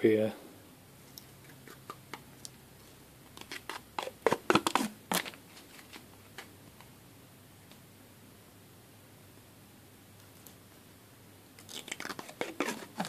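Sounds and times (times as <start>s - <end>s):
plastic film peeling crackle: 11.7s - 13.0s.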